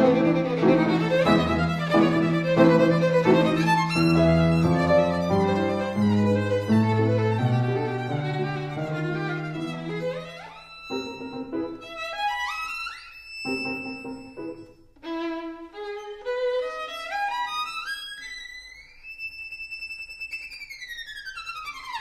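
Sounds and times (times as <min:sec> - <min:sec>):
violin music with rising runs: 0:00.0 - 0:12.7, 0:13.4 - 0:16.4.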